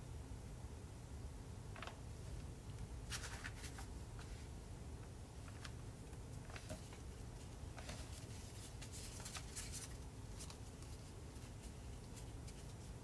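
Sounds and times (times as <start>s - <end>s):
paper rustling and crinkling: 3.0s - 4.4s, 5.4s - 13.0s.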